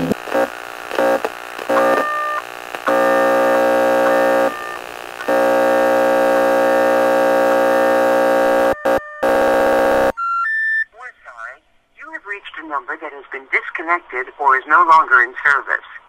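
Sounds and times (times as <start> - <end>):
buzzing phone tone: 0.0 - 10.1.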